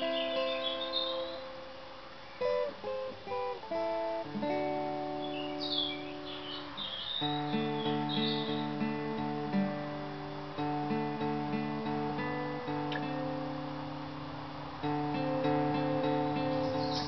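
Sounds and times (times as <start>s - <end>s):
bird chirping: 0.0s - 1.6s, 2.2s - 3.1s, 4.8s - 9.2s, 14.4s - 17.0s
acoustic guitar strumming: 0.0s - 17.0s.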